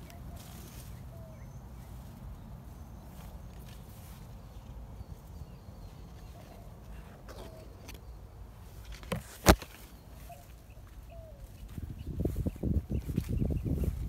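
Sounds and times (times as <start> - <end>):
faint bird chirps: 0.0 - 8.3, 9.8 - 14.0
wind rumble on microphone: 10.9 - 14.0.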